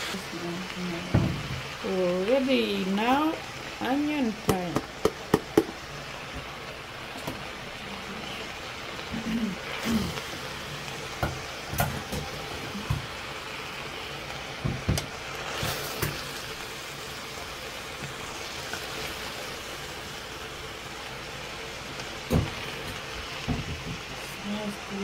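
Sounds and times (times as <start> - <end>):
vegetables sizzling in oil: 0.0 - 25.0
utensil knocking against pot: 4.5 - 5.7.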